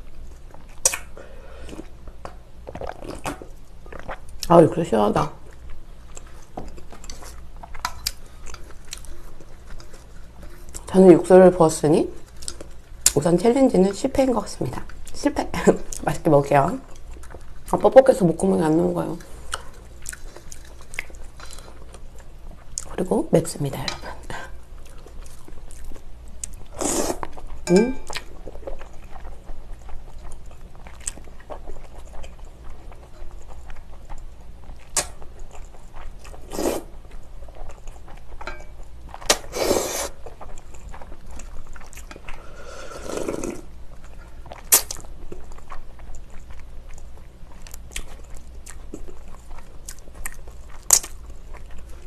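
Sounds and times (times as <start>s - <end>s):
person slurping noodles: 26.8s - 27.2s, 36.5s - 36.9s, 39.3s - 40.2s, 42.4s - 43.7s.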